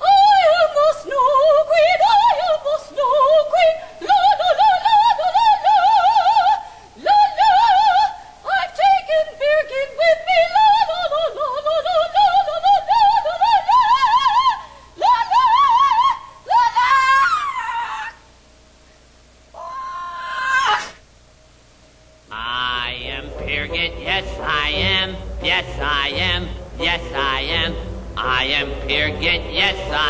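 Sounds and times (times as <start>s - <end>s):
breaths: 6.6s - 7.0s, 14.6s - 15.0s
person singing operatically: 22.3s - 30.0s.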